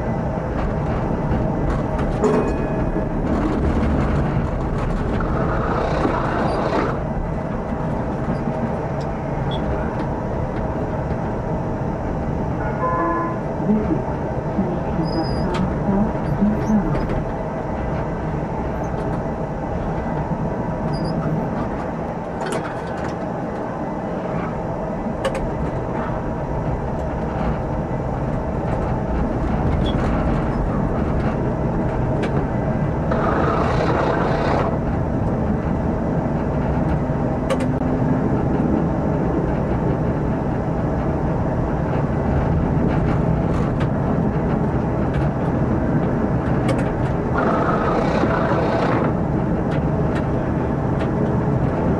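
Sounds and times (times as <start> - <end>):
tram motor and wheel-on-rail noise: 0.0 - 51.9.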